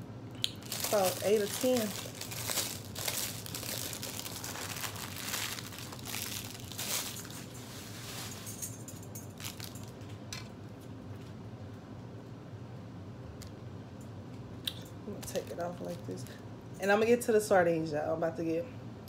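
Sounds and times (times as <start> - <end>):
plastic wrapper crinkling: 0.4 - 8.7, 9.3 - 10.1.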